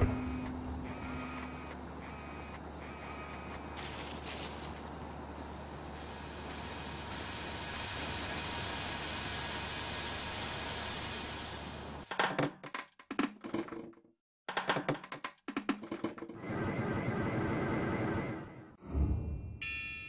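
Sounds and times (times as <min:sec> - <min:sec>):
steady machine hum: 0:00.0 - 0:07.1
steady hiss: 0:00.9 - 0:12.0.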